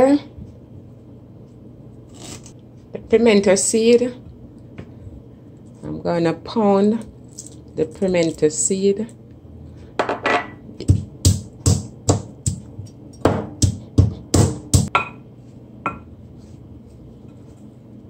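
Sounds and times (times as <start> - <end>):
pestle pounding seeds in mortar: 10.8 - 15.2.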